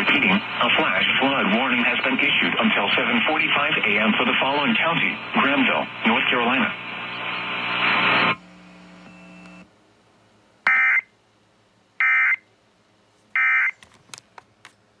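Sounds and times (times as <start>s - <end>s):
clock radio sound: 0.0s - 8.4s.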